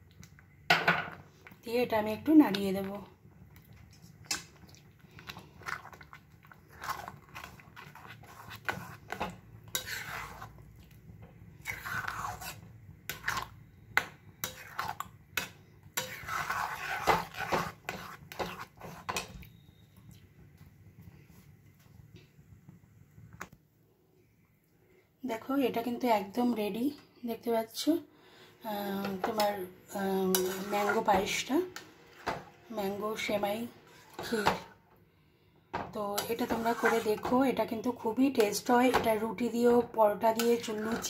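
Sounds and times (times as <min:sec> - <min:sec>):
spoon scraping metal pan: 0:06.7 - 0:10.6, 0:11.6 - 0:19.4, 0:29.0 - 0:34.8, 0:36.1 - 0:39.2, 0:40.3 - 0:41.0.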